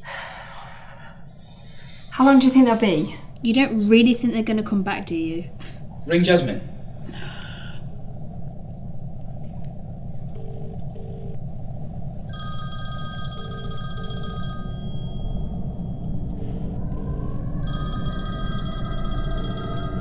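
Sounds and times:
low steady rumble: 0:00.0 - 0:20.0
mobile phone ringtone: 0:12.3 - 0:16.0, 0:17.6 - 0:20.0
double-ring ringback tone: 0:12.3 - 0:16.6, 0:17.6 - 0:20.0.

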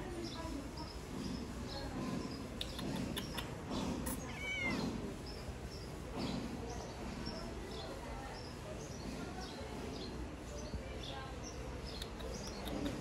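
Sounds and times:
kitten meowing: 0:04.1 - 0:04.8.

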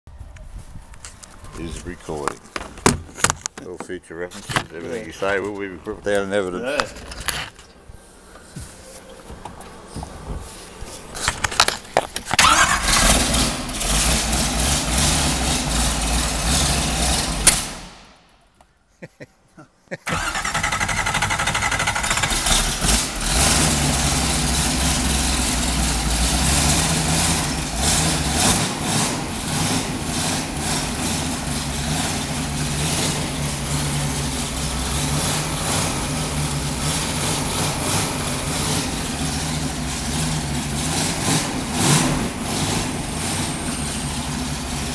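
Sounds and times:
engine starting and running: 0:10.5 - 0:18.1, 0:20.0 - 0:44.9.

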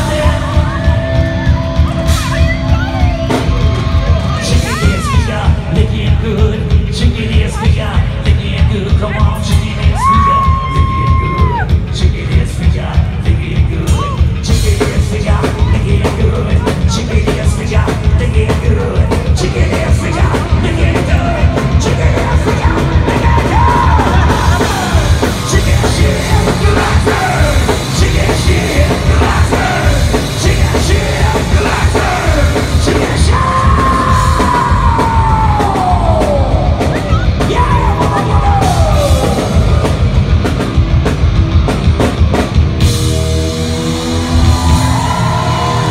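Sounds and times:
shouted vocals: 0:00.0 - 0:05.6, 0:09.8 - 0:11.8, 0:19.3 - 0:39.9, 0:44.2 - 0:45.9
heavy rock band playing: 0:00.0 - 0:45.9.

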